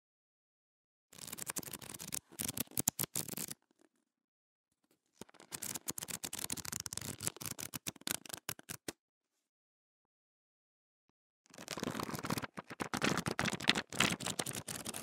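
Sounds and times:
book pages riffled rapidly: 5.3 - 8.9, 11.5 - 15.0.

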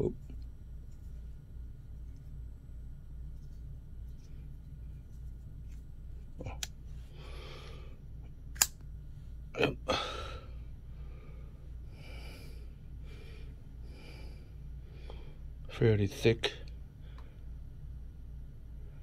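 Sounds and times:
soft breathing: 6.4 - 8.3, 9.2 - 15.6, 16.8 - 17.7.

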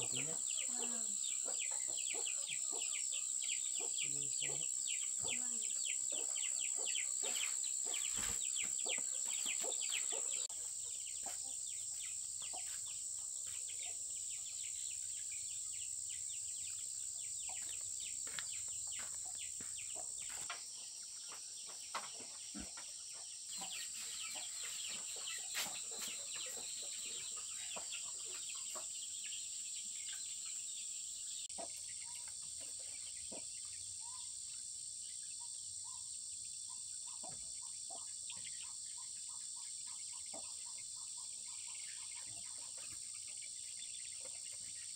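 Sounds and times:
bird chirps: 0.0 - 44.9.

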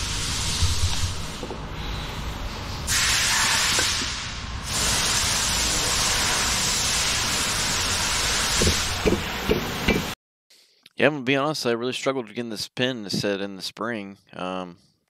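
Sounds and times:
loud steady hiss: 0.0 - 10.1.

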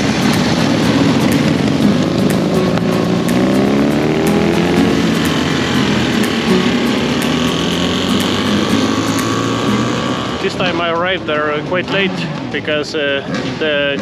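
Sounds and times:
motorcycle engine accelerating: 0.0 - 14.0.

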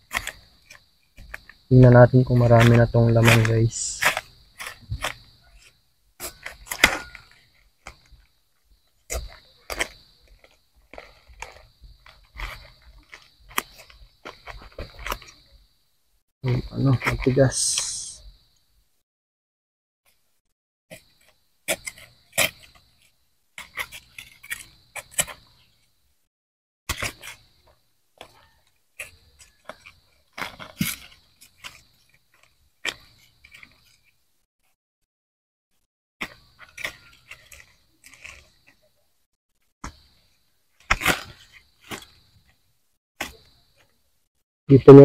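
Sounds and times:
digging in compacted soil: 0.0 - 15.4, 26.9 - 34.2, 36.2 - 39.0, 39.8 - 42.6
soil and leaves crunching: 0.1 - 8.1.

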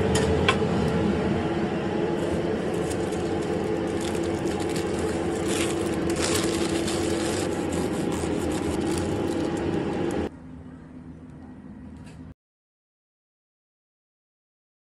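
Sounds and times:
steady machine hum: 0.0 - 12.4
paper wrap crinkling: 2.2 - 10.3.

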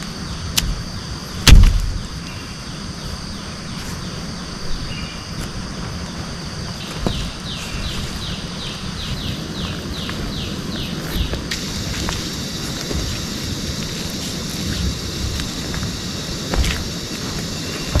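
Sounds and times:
steady high drone: 0.0 - 18.0
loud thump: 1.4 - 2.0.

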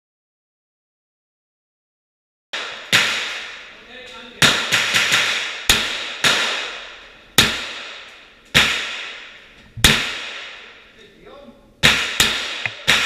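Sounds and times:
rifle shots echoing: 2.6 - 10.9, 11.8 - 13.0.

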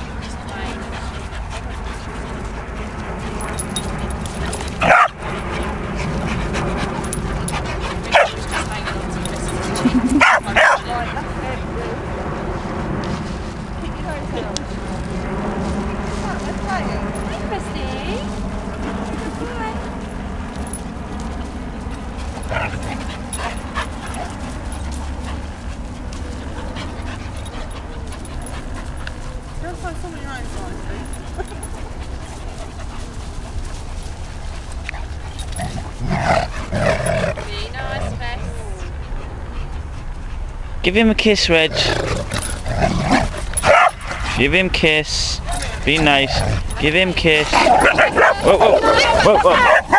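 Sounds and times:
dogs play-fighting: 0.0 - 44.6, 45.3 - 49.9
dog barking: 4.8 - 5.1, 8.1 - 8.4, 10.2 - 10.8, 43.7 - 44.0
dog vocal sounds: 45.4 - 49.9.

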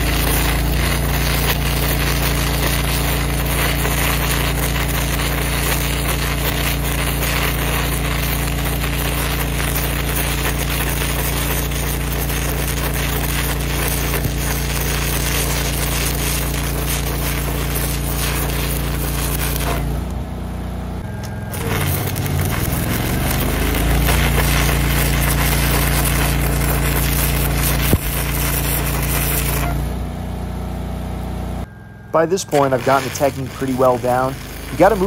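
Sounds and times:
arc gouging crackling and hissing: 0.0 - 20.2, 21.2 - 29.9, 32.2 - 35.0
engine hum: 0.0 - 35.0
sharp arc pop: 21.2 - 29.9.

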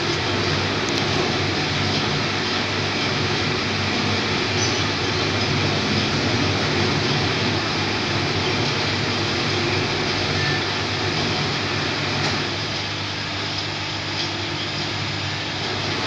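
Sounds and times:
electrical hum: 0.0 - 16.0
rushing machine noise: 0.0 - 16.0.

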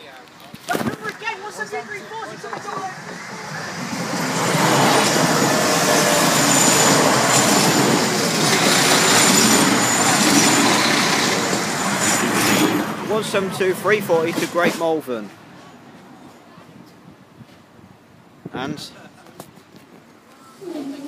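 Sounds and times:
train passing: 0.9 - 16.6.

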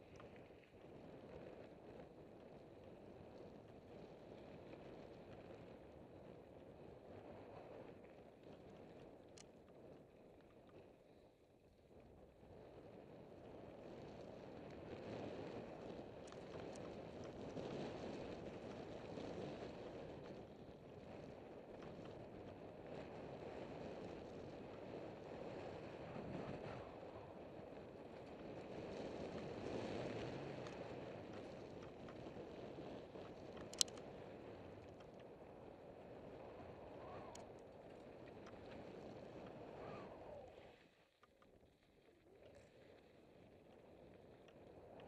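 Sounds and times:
wind on microphone: 12.9 - 40.8
sharp click: 33.6 - 34.0.

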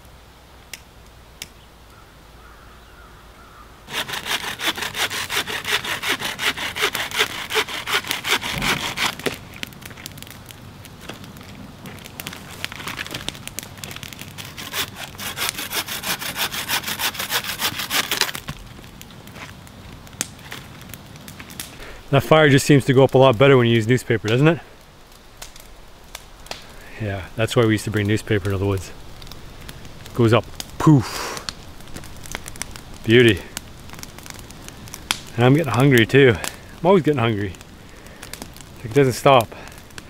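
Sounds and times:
hand saw cutting wood: 3.9 - 9.4, 14.4 - 18.4.

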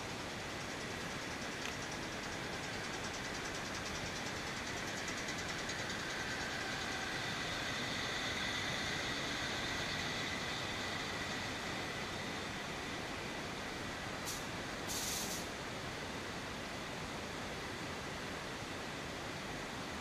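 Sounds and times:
diesel locomotive idling: 0.0 - 14.6.

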